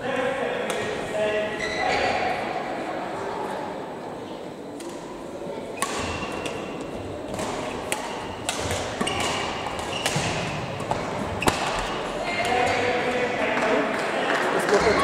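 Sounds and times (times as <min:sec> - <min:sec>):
murmur of voices: 0:00.0 - 0:15.0
badminton rackets striking shuttlecocks: 0:05.8 - 0:12.8.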